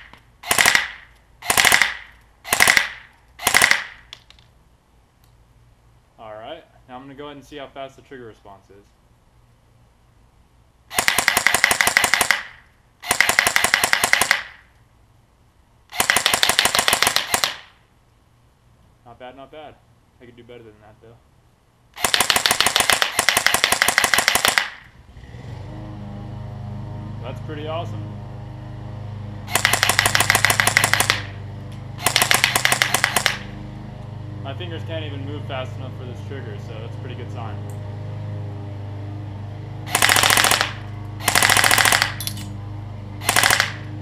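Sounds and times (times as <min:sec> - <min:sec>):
airsoft rifle firing rapid shots: 0:00.0 - 0:04.1, 0:10.9 - 0:14.6, 0:15.9 - 0:17.8, 0:22.0 - 0:24.9, 0:29.5 - 0:31.4, 0:32.0 - 0:33.5, 0:39.9 - 0:42.2, 0:43.2 - 0:43.9.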